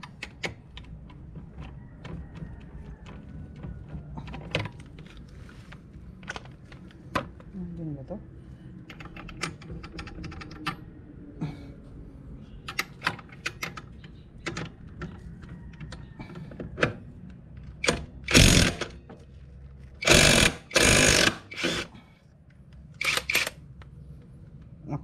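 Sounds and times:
impact wrench hammering: 20.0 - 21.8.

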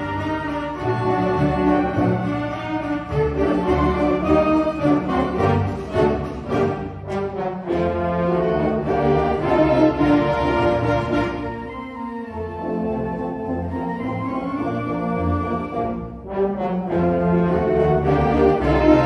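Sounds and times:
wind band playing: 0.0 - 19.0.

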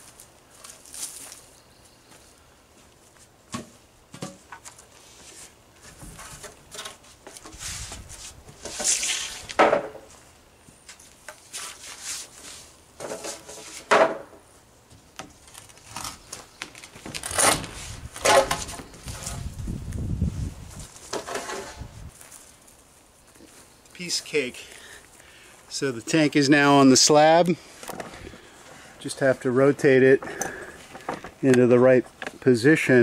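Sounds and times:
wooden planks knocking and clattering: 9.5 - 10.1, 18.2 - 18.9, 21.1 - 21.8.

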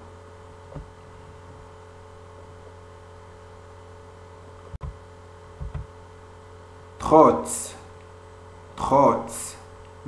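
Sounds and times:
low electrical hum and hiss: 0.0 - 10.0
soft low bump: 5.6 - 5.9.

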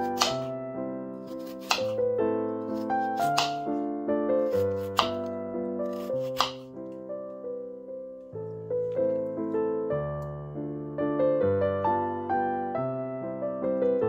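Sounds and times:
knife cutting potato on board: 0.0 - 0.5, 1.2 - 2.0, 2.7 - 3.8, 4.4 - 6.7
gentle piano music: 0.0 - 14.0.

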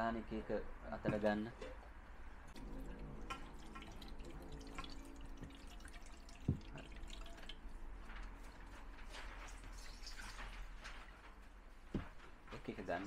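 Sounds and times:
water pouring into cups: 2.4 - 8.6, 9.3 - 10.6
water dripping: 2.5 - 8.6.

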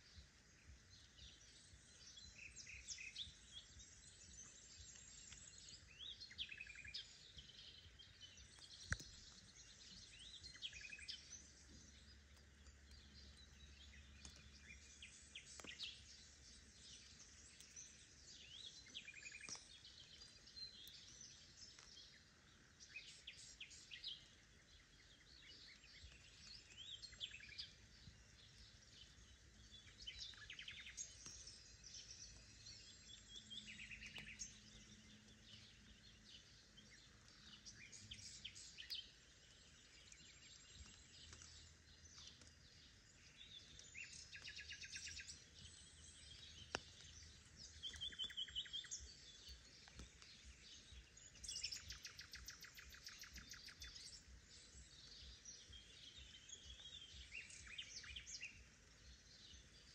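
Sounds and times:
light rain hiss: 0.0 - 55.0
songbirds chirping and trilling: 0.0 - 59.9.

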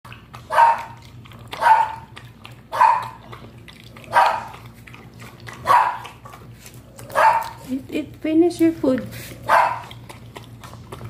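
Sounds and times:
dog barking: 0.5 - 2.1, 2.7 - 3.3, 4.1 - 4.6, 5.6 - 6.2, 7.0 - 7.6, 9.4 - 10.0.

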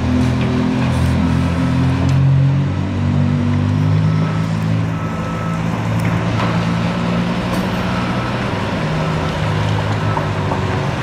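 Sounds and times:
diesel truck engine running: 3.8 - 11.0.

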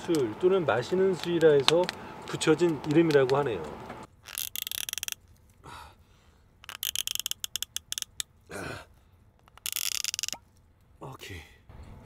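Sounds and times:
bottle cap ratcheting clicks: 1.1 - 5.2, 6.6 - 8.3, 9.4 - 10.5.

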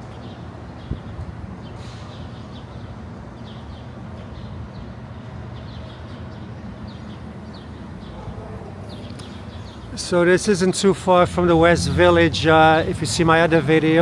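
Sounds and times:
small birds chirping: 0.0 - 10.6
traffic rumble: 0.0 - 14.0.

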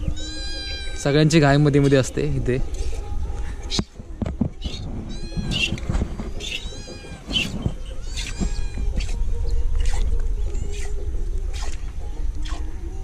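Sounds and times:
cat meowing: 0.1 - 1.2, 4.7 - 5.8, 6.4 - 9.2.

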